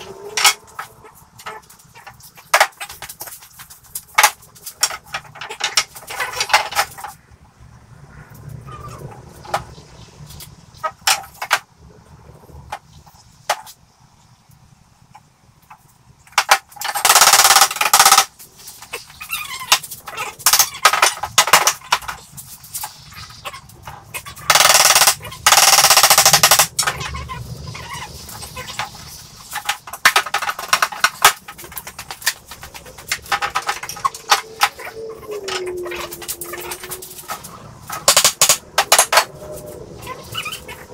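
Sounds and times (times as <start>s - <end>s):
wooden boards knocking: 0.3s - 1.6s, 29.5s - 36.9s, 37.9s - 39.3s.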